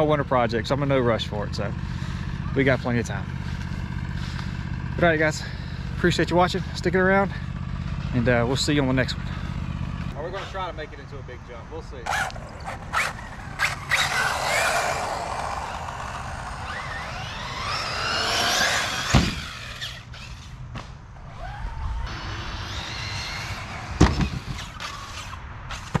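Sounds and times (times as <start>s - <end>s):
toy car motor whine: 12.1s - 20.6s, 21.3s - 25.4s.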